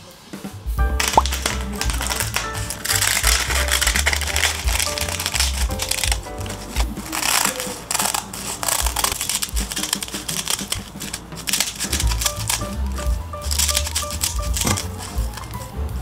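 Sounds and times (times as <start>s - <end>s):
background music with bass: 0.5s - 7.4s, 11.9s - 16.0s
scissors snipping seaweed sheets: 1.0s - 15.7s.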